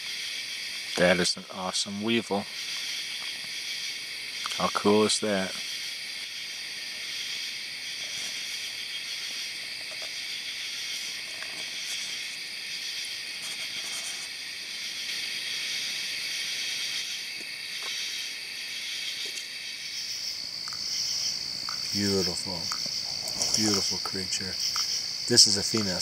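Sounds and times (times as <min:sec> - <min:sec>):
crickets chirping: 0:00.0 - 0:26.0.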